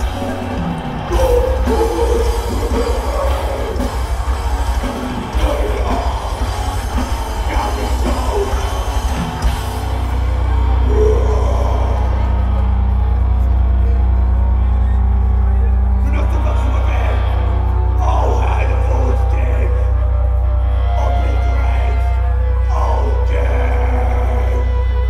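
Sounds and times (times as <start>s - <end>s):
shouted vocals: 0.0s - 13.1s
bass guitar: 0.0s - 25.0s
distorted electric guitar: 0.0s - 25.0s
drums: 0.0s - 25.0s.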